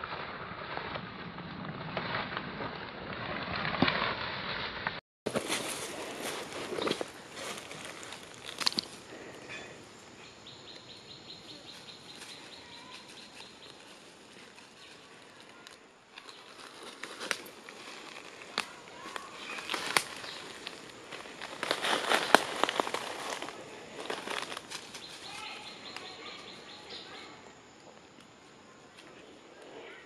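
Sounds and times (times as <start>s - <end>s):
dry leaves crackling and rustling: 5.3s - 9.0s, 11.6s - 26.8s.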